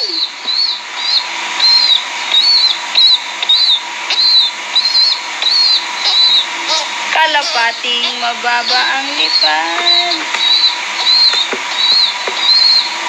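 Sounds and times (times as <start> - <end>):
faint steady hum: 0.0 - 13.0
young bird peeping: 0.0 - 13.0.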